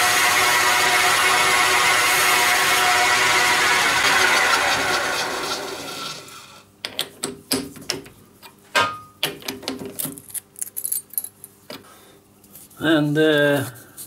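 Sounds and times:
metal lathe running: 0:00.0 - 0:06.2.

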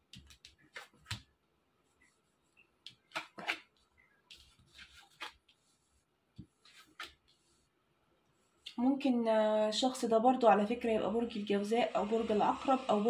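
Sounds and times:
cards swishing and tapping: 0:00.0 - 0:01.3, 0:02.5 - 0:05.7, 0:06.3 - 0:07.5.

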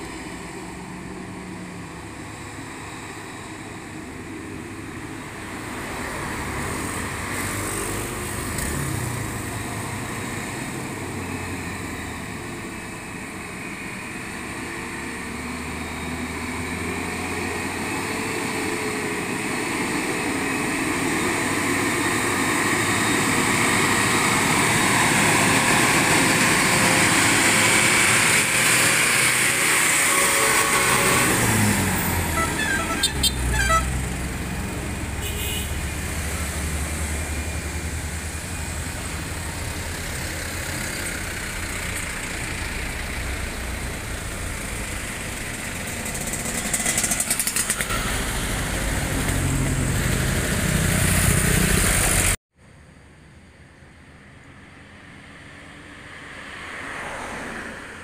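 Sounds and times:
passing cars: 0:00.0 - 0:52.4, 0:53.7 - 0:58.0
diesel lorries climbing: 0:00.0 - 0:55.9
motorcycles passing: 0:55.4 - 0:58.0.

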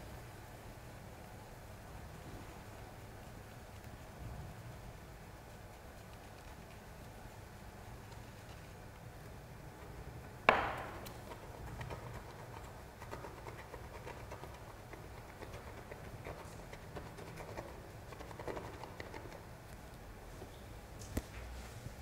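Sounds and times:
sharp knock: 0:10.5 - 0:11.0.

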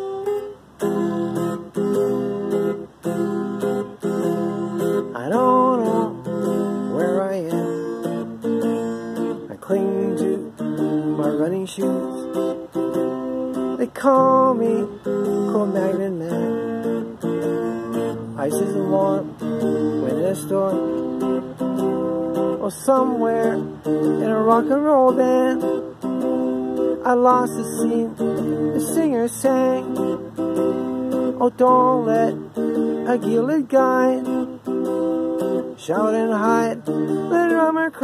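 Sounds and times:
electric guitar strumming: 0:00.0 - 0:38.0
man singing: 0:04.8 - 0:08.2, 0:09.2 - 0:12.6, 0:13.6 - 0:21.4, 0:22.4 - 0:25.9, 0:26.8 - 0:34.5, 0:35.7 - 0:38.0.

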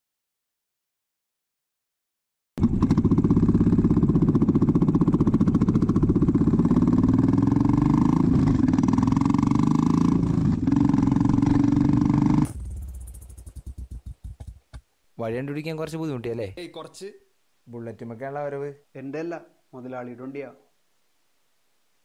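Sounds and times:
motorcycle engine thumping: 0:02.6 - 0:07.2, 0:12.3 - 0:14.9.

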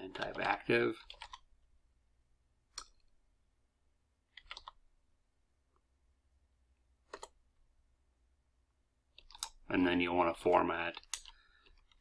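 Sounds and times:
keyboard keystrokes: 0:00.1 - 0:01.5, 0:04.3 - 0:04.8, 0:07.1 - 0:07.4.

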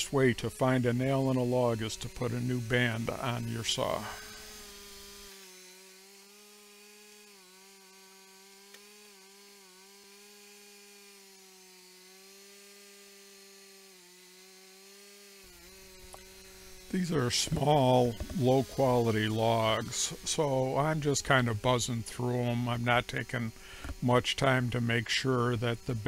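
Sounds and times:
sawmill engine droning: 0:00.0 - 0:26.0.

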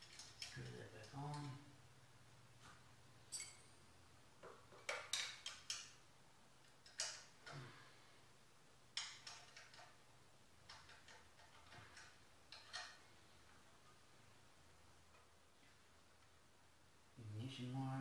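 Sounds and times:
hand tools clicking and tapping metal: 0:00.0 - 0:01.6, 0:03.3 - 0:03.6, 0:04.5 - 0:06.0, 0:06.6 - 0:07.7, 0:09.0 - 0:10.0, 0:10.6 - 0:13.0.

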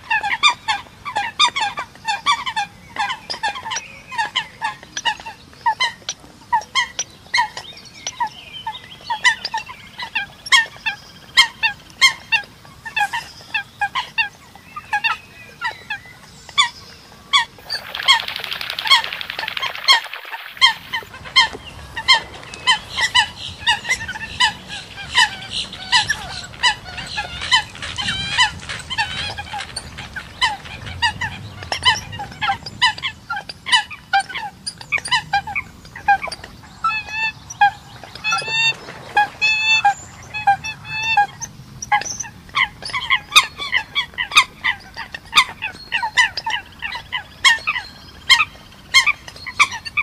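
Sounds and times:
coots honking: 0:17.6 - 0:31.4.

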